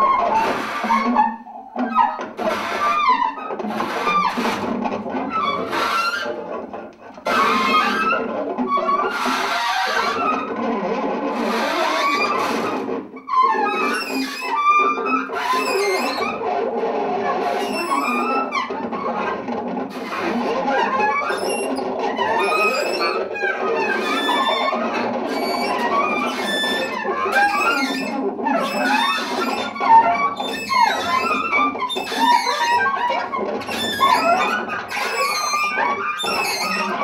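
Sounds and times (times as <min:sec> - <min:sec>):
clattering and scraping percussion: 0:00.0 - 0:37.0
squealing sliding electronic tones: 0:21.2 - 0:37.0.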